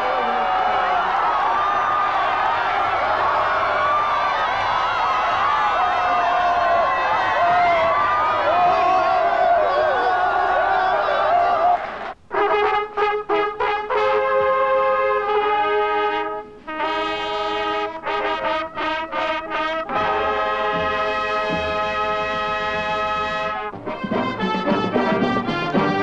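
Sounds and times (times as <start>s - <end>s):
brass horns playing a fanfare: 12.3s - 26.0s.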